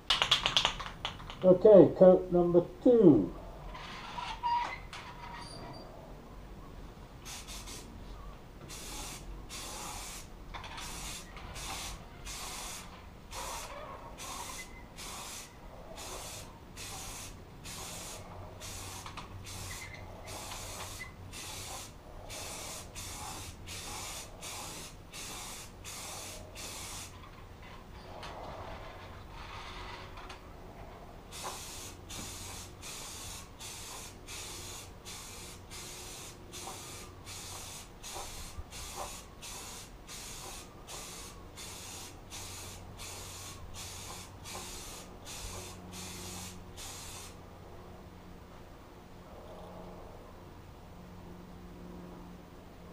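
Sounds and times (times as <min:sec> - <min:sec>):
aerosol spray can hissing: 0:07.3 - 0:07.9, 0:08.7 - 0:27.1, 0:31.3 - 0:47.4.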